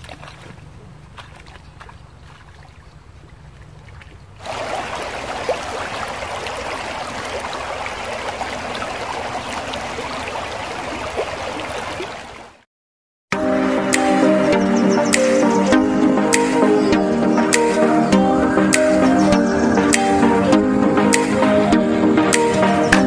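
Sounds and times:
faint riverside background: 0:00.0 - 0:12.6, 0:13.4 - 0:23.0
river water flowing: 0:00.0 - 0:12.6.

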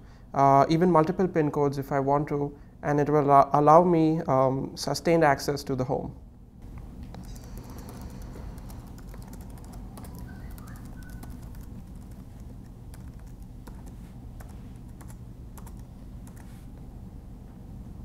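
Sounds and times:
low hum: 0:06.2 - 0:18.0.

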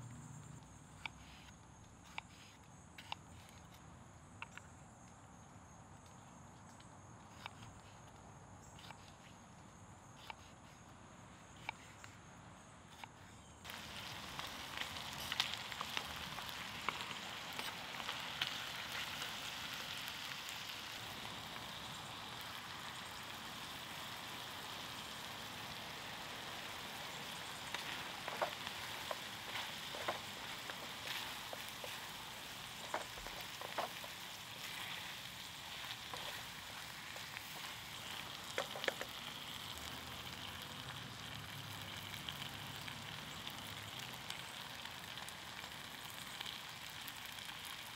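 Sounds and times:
food sizzling in a pan: 0:13.6 - 0:47.9.

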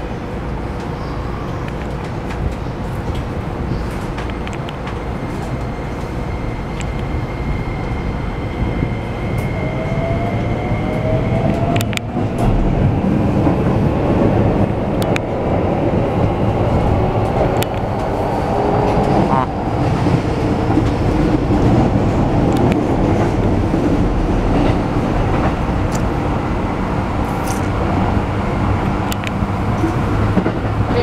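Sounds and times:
train running rumble: 0:00.0 - 0:31.0
electric train inverter whine: 0:00.1 - 0:31.0
sharp clicks from rails: 0:00.7 - 0:06.1, 0:10.4 - 0:15.5, 0:16.2 - 0:23.6, 0:29.0 - 0:30.9.

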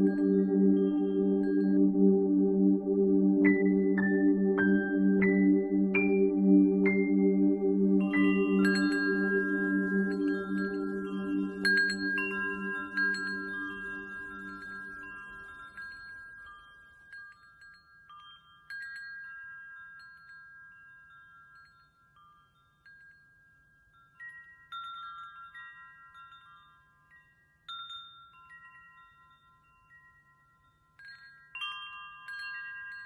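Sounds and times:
low hum: 0:00.0 - 0:15.4
metal wind chimes ringing: 0:07.9 - 0:33.0.

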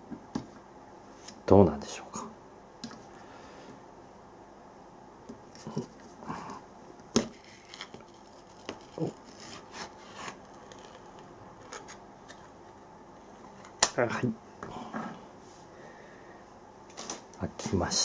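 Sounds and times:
foil crinkling and tearing: 0:07.2 - 0:12.0.

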